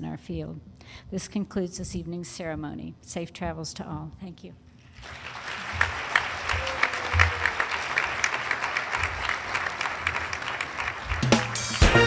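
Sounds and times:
audience applauding: 0:05.0 - 0:12.0
music: 0:10.5 - 0:12.0.

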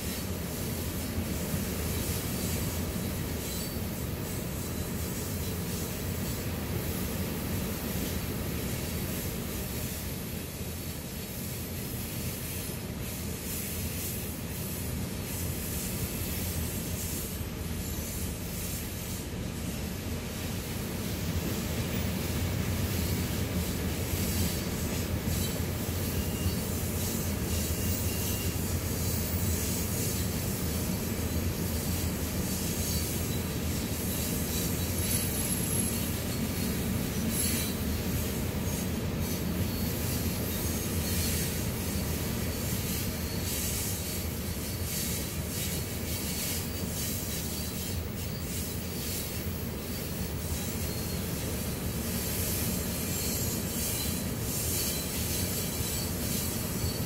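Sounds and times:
train wheels rumbling on rails: 0:00.0 - 0:57.0
wheel squeals: 0:01.9 - 0:05.8, 0:22.9 - 0:57.0.

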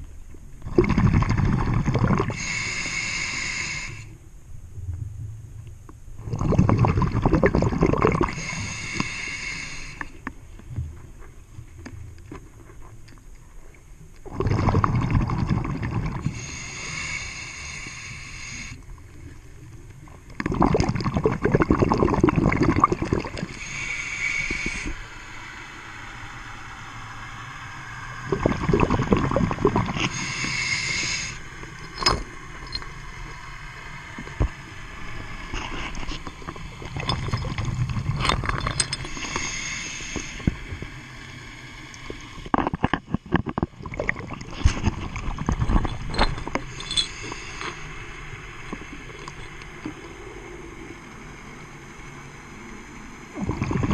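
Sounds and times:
exhaled air bubbling: 0:00.6 - 0:04.1, 0:06.2 - 0:11.2, 0:14.1 - 0:25.4, 0:28.1 - 0:51.5, 0:52.5 - 0:53.9
regulator hissing inhale: 0:02.2 - 0:04.2, 0:08.3 - 0:10.3, 0:16.2 - 0:19.4, 0:23.4 - 0:27.2, 0:29.9 - 0:32.0, 0:39.0 - 0:42.3, 0:46.6 - 0:49.1.

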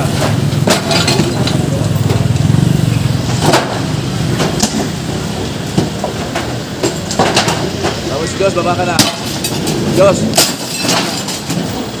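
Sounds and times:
demolition knocks on wood and metal: 0:00.0 - 0:02.3, 0:03.2 - 0:05.0, 0:05.7 - 0:08.1, 0:08.9 - 0:11.8
vehicle engine running: 0:00.0 - 0:10.4.

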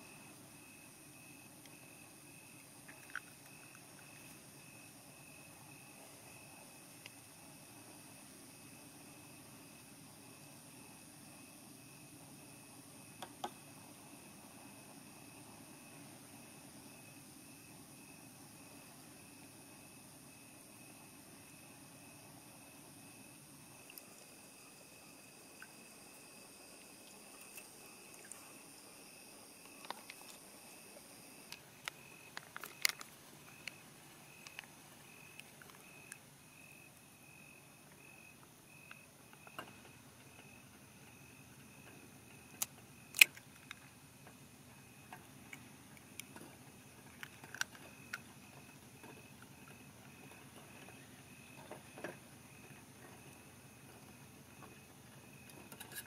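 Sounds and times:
faint pulsing high tone: 0:00.0 - 0:43.8.

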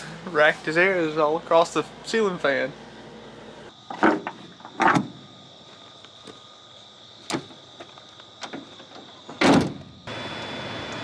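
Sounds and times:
sharp knocks and clunks: 0:03.9 - 0:05.3, 0:07.2 - 0:09.9.

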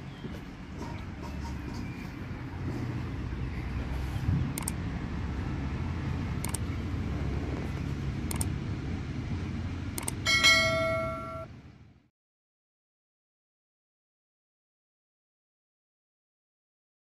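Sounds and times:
steady low rumble: 0:00.0 - 0:12.1
notification bell ding: 0:10.3 - 0:11.5.

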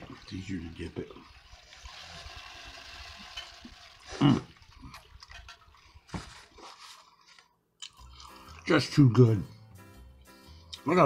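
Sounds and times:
chewing with crunches: 0:07.0 - 0:08.7.

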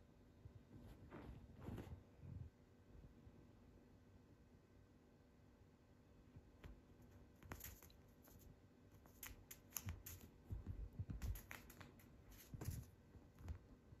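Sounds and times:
kitten playing taps and rustles: 0:06.4 - 0:14.0.

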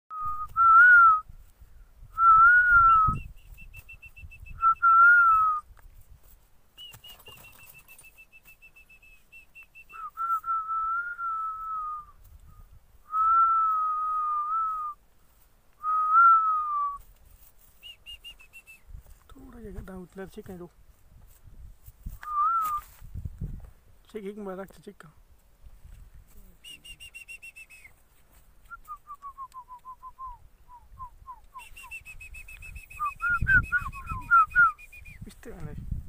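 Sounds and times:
person whistling: 0:00.1 - 0:01.3, 0:02.2 - 0:05.6, 0:06.8 - 0:15.0, 0:15.8 - 0:17.0, 0:17.8 - 0:18.8, 0:22.2 - 0:22.9, 0:26.6 - 0:28.0, 0:28.7 - 0:35.2.

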